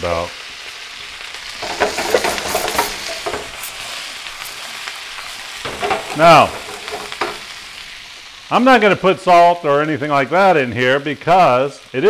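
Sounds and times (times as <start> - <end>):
vegetables sizzling in oil: 0.0 - 12.0
stirring clicks: 1.6 - 3.8.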